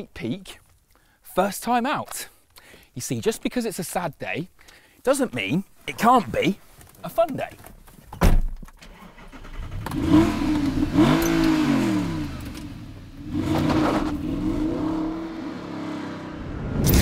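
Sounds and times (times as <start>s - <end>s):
car engine starting and revving: 8.9s - 17.0s.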